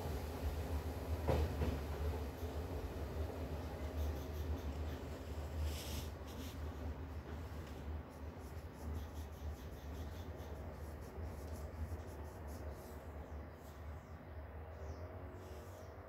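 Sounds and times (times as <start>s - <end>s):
train rumble with hiss: 0.0s - 16.0s.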